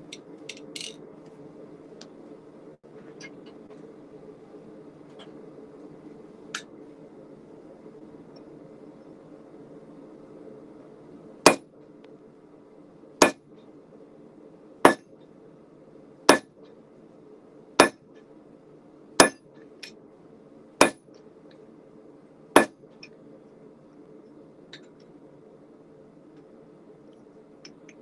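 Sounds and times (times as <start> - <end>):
forge burner hum: 0.0 - 28.0
hammer striking steel on anvil: 14.8 - 15.0, 17.8 - 18.0, 19.2 - 19.4, 20.8 - 21.0, 22.6 - 22.8.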